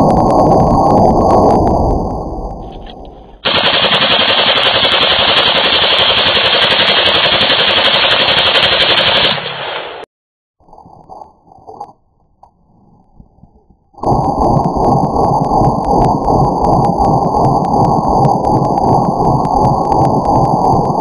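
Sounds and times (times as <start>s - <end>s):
automatic rifle burst: 3.4s - 9.8s.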